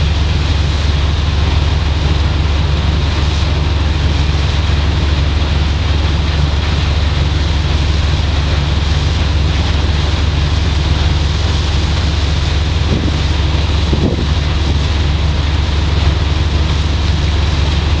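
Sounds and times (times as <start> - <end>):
ship machinery rumbling: 0.0 - 18.0
wind on microphone: 7.4 - 18.0.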